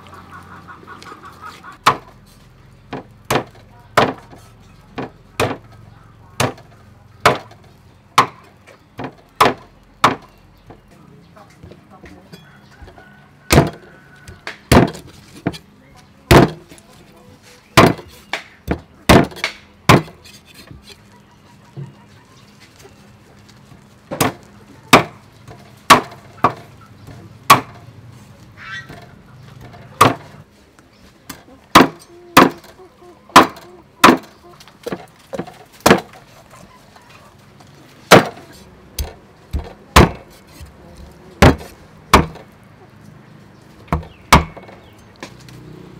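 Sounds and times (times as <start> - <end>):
meat cleaver chopping on wooden block: 13.5 - 13.8, 39.0 - 40.8, 41.4 - 42.4.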